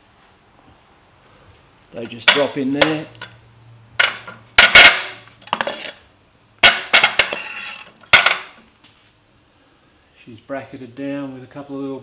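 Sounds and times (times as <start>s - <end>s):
hammer heads clanking on metal holders: 2.0s - 3.4s, 4.0s - 5.9s, 6.6s - 8.6s.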